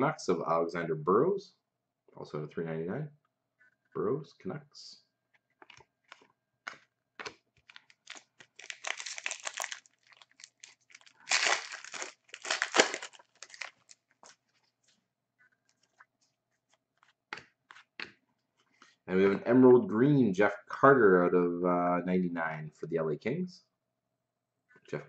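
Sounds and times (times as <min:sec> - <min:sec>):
cards clicking and tapping: 0:05.6 - 0:08.6
foil wrapper tearing and crinkling: 0:07.6 - 0:14.5.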